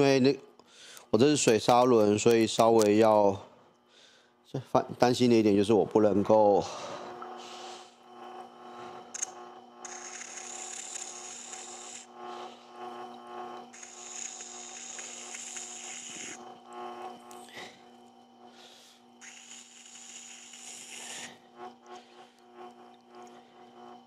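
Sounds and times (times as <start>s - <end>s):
grinder motor hum: 5.2s - 24.0s
gear scraping on grindstone: 9.2s - 12.1s, 13.7s - 16.5s, 19.2s - 21.4s.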